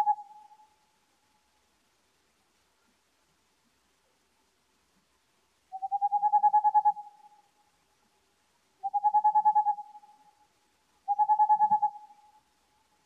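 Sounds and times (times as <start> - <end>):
owl hooting in rapid trills: 0.0 - 0.6, 5.7 - 7.4, 8.8 - 10.1, 11.1 - 12.4.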